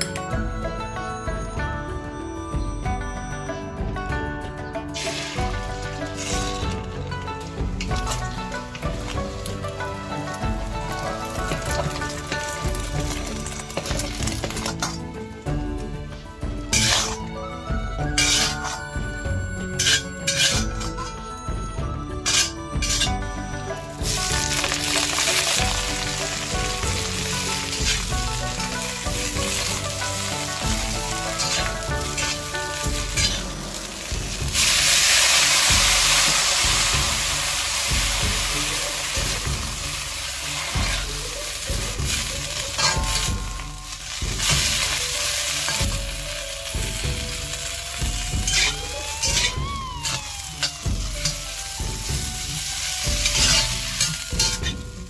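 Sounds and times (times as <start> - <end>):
food sizzling in hot oil: 5.0 - 7.0, 18.2 - 18.7, 19.8 - 20.7, 23.9 - 55.0.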